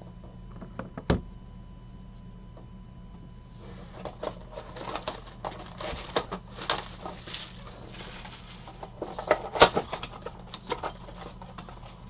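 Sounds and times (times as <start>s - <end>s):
wrapping and cardboard tearing: 3.9s - 12.0s.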